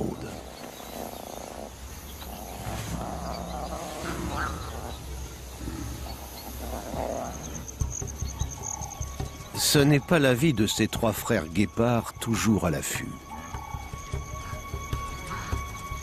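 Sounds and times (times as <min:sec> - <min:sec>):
lions growling low: 0:00.0 - 0:09.0
high insect trill: 0:00.0 - 0:16.0.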